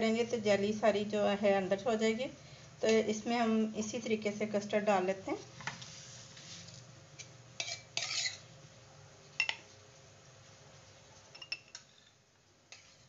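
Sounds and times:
glassware clinking: 11.3s - 11.8s.

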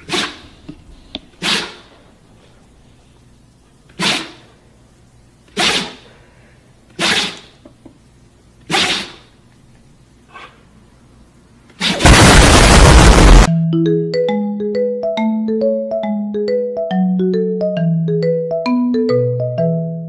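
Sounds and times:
person sneezing: 0.0s - 0.4s, 1.4s - 1.9s, 4.0s - 4.5s, 5.5s - 6.2s, 7.0s - 7.5s, 8.7s - 9.3s, 11.8s - 12.0s.

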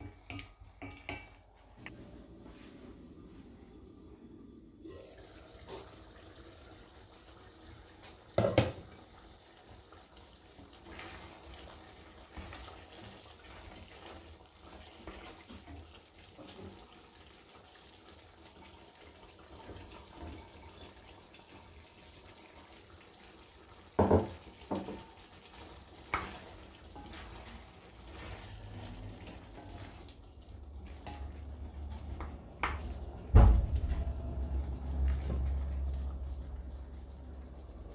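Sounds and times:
wooden spoon stirring: 0.0s - 1.9s, 10.6s - 17.1s, 24.2s - 33.2s
stew simmering: 0.0s - 37.9s.

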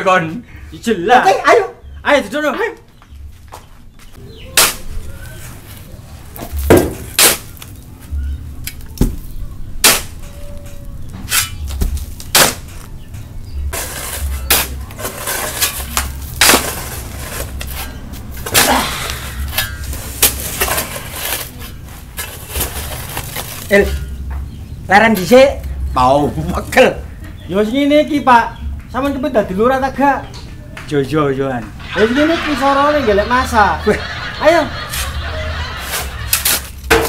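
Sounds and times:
shovels clanking on metal truck bed: 9.8s - 24.2s, 35.9s - 37.0s
shovels scraping sand: 13.7s - 24.0s, 34.8s - 37.0s.

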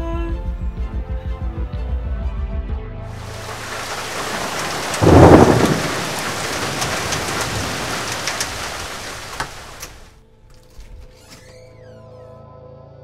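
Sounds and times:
steady rain: 3.1s - 10.2s
thunderclap: 3.2s - 10.1s.

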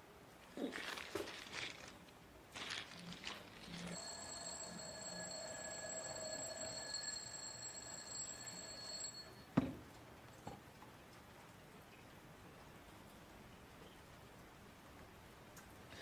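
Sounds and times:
ringing alarm-like tone: 3.7s - 9.5s.

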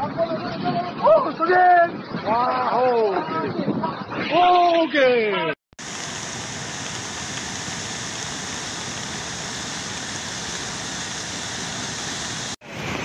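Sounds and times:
water rushing down stream: 5.8s - 13.0s.

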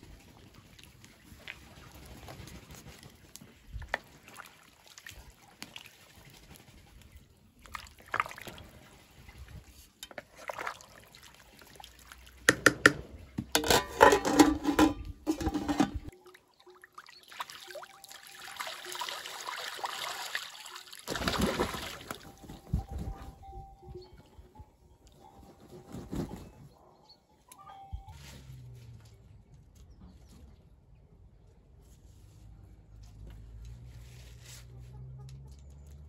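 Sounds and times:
duck splashing in water: 0.1s - 9.5s, 17.0s - 22.5s
spoon stirring broth in pot: 12.5s - 16.1s.

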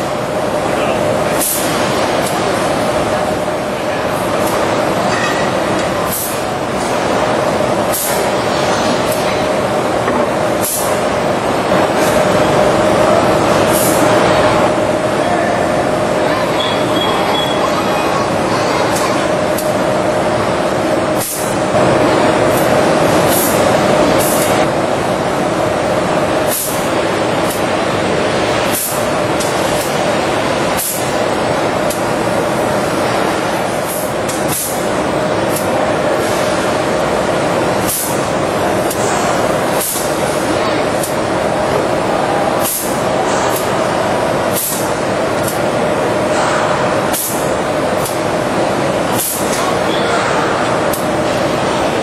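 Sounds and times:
factory machinery humming: 0.0s - 52.0s.

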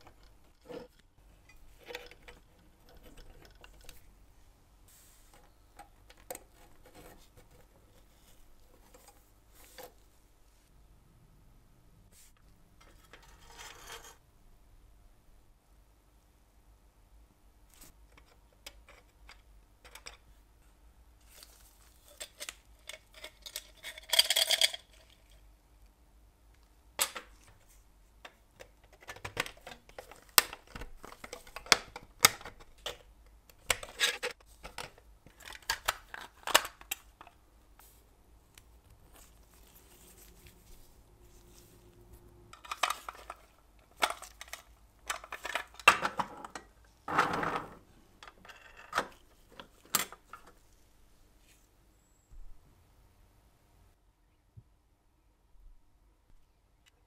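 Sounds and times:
metal sliding scrape: 12.9s - 14.2s.

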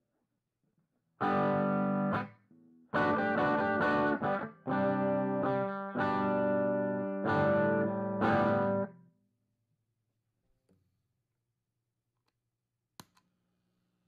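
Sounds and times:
overdriven electric guitar chords: 1.2s - 2.3s, 2.9s - 9.0s.

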